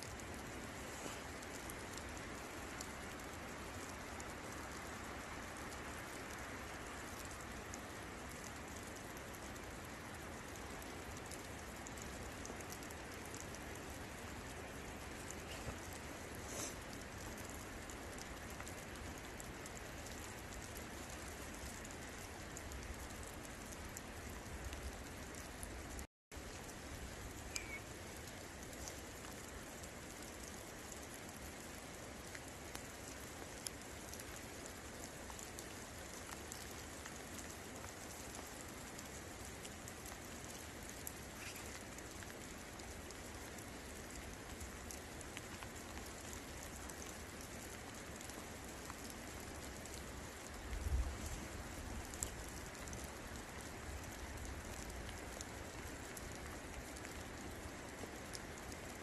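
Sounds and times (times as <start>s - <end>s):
steady rain falling: 0.0s - 59.0s.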